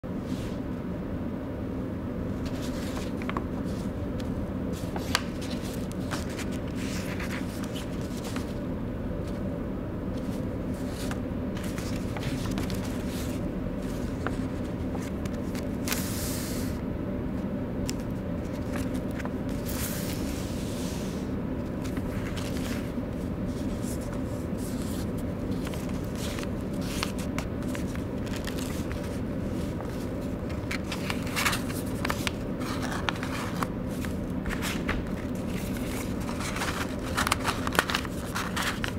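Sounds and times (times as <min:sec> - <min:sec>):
steady low hum: 0:00.0 - 0:38.9
sharp paper crackles: 0:02.4 - 0:08.6, 0:10.2 - 0:16.1, 0:21.8 - 0:23.0, 0:23.6 - 0:38.9
paper rustling and crinkling: 0:02.4 - 0:09.5, 0:10.1 - 0:16.2, 0:17.9 - 0:20.8, 0:21.6 - 0:38.9.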